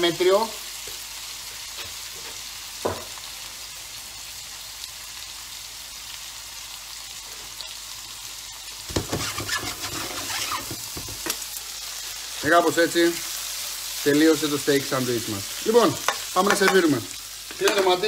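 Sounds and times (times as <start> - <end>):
steak sizzling in a frying pan: 0.0 - 18.0
metal tongs scraping a pan: 8.9 - 11.4.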